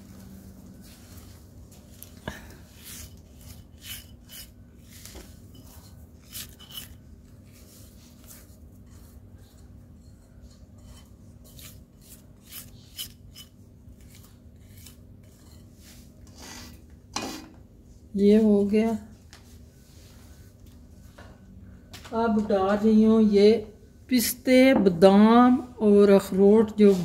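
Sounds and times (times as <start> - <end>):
spoon scraping a bowl: 2.8 - 17.5.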